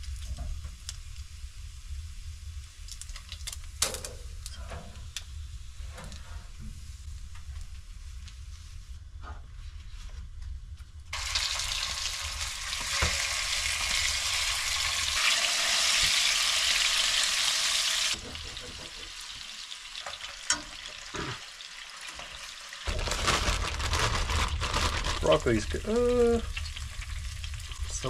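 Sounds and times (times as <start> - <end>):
chicken sizzling in hot oil: 11.1 - 23.7, 25.2 - 28.0.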